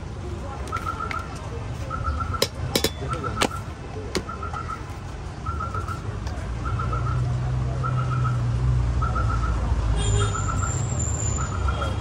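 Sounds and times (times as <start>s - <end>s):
street rumble: 0.0s - 12.0s
utensils clicking and knocking: 2.4s - 3.6s.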